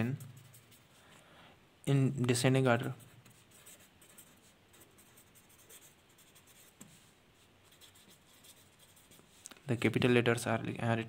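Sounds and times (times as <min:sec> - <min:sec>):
pen scratching on paper: 0:00.0 - 0:01.0, 0:02.8 - 0:09.4.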